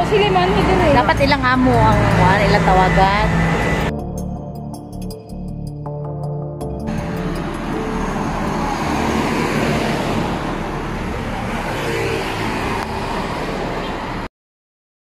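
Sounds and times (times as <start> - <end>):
road traffic passing: 0.0 - 4.3, 6.7 - 14.3.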